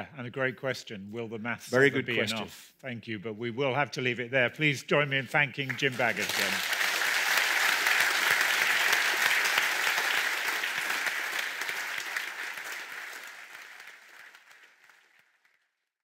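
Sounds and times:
audience applauding: 5.6s - 15.7s.

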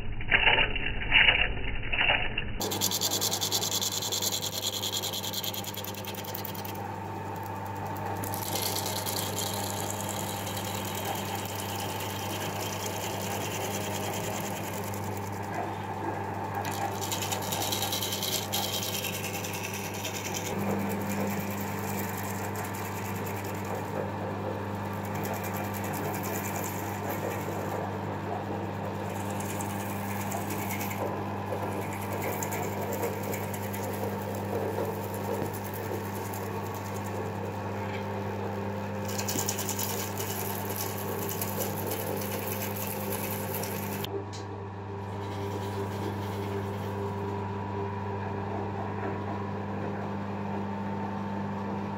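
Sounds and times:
gouge cutting spinning pineapple: 2.6s - 44.1s
wood lathe motor hum: 2.6s - 44.1s, 45.1s - 47.3s.

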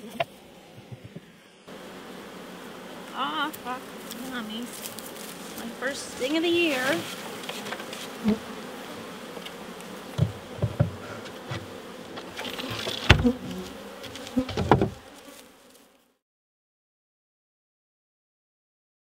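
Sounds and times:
bees buzzing: 0.0s - 16.2s
wooden knocks: 10.2s - 11.6s, 14.5s - 15.0s.

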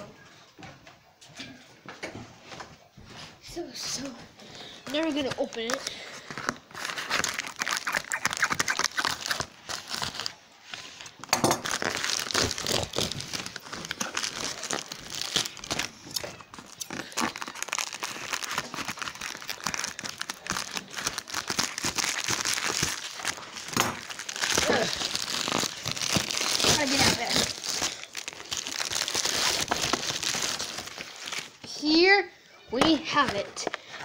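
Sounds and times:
plastic bag crinkling: 4.8s - 31.7s
scissors cutting plastic: 11.3s - 30.3s.

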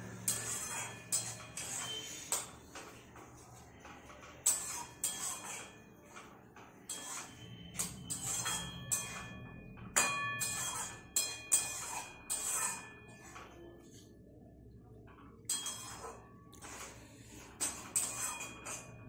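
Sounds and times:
wok ringing: 0.0s - 2.5s, 4.4s - 6.0s, 6.8s - 13.8s, 15.4s - 19.0s
metal spatula scraping a wok: 0.0s - 3.0s, 3.6s - 14.1s, 15.4s - 19.0s.

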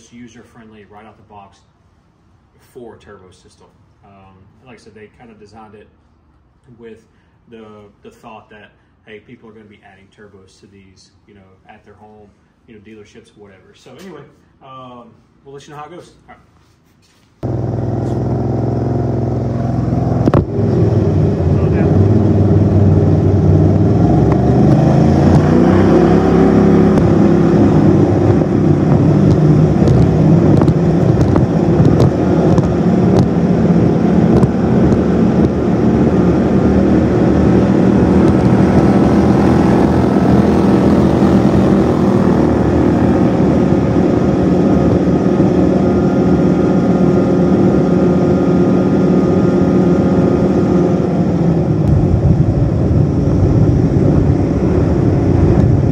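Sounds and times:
boat motor revving: 17.4s - 55.9s.

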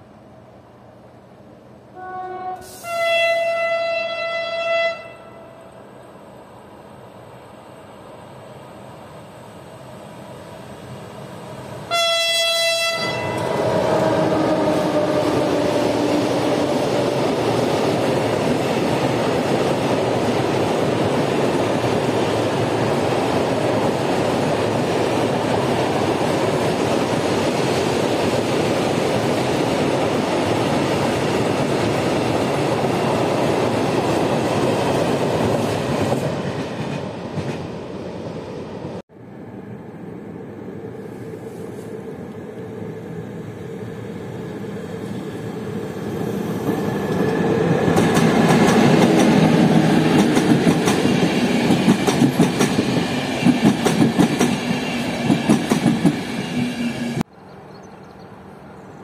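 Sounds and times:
freight train rumbling past: 0.0s - 57.6s
train horn blast: 1.9s - 5.6s, 11.9s - 15.4s.

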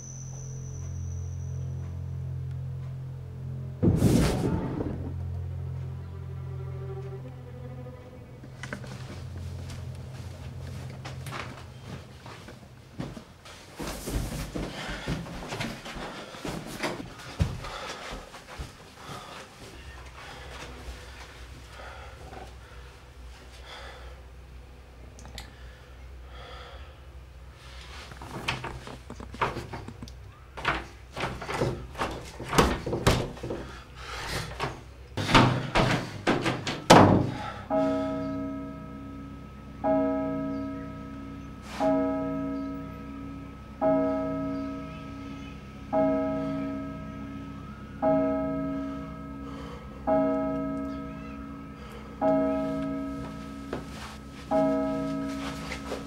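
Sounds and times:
low bell-like music note: 0.0s - 3.8s, 37.7s - 56.0s
banging on a door: 30.6s - 33.7s, 35.2s - 37.4s.

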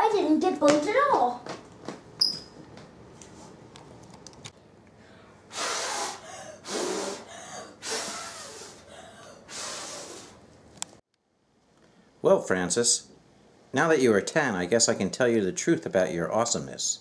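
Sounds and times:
person gasping breaths: 5.0s - 10.4s.

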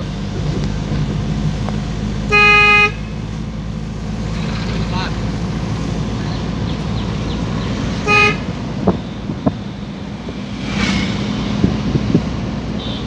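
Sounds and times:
vehicle engine and road noise: 0.0s - 13.0s
vehicle horn tooting: 2.3s - 3.2s, 8.0s - 9.4s, 12.8s - 13.0s.

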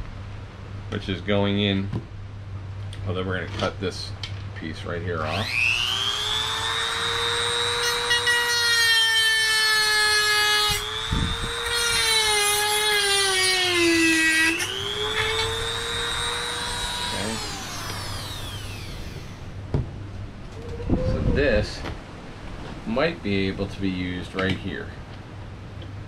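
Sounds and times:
rotary tool whining: 5.3s - 19.6s.

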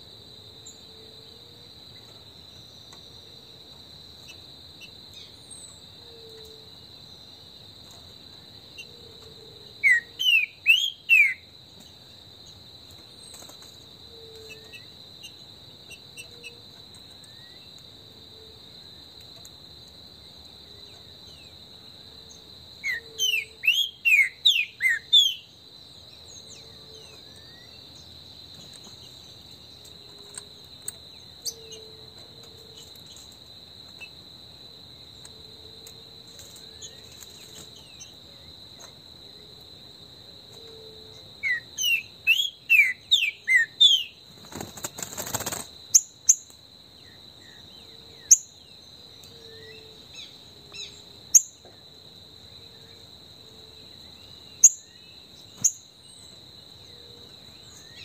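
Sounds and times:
high insect drone: 0.0s - 58.0s
bird whistled song: 9.8s - 11.5s, 22.8s - 25.5s, 41.4s - 44.2s.

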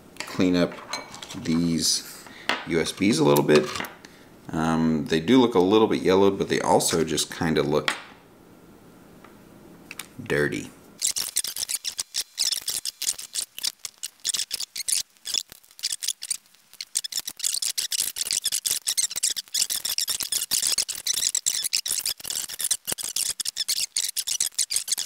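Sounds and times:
cotton swab scratchy rubbing: 11.0s - 25.0s.

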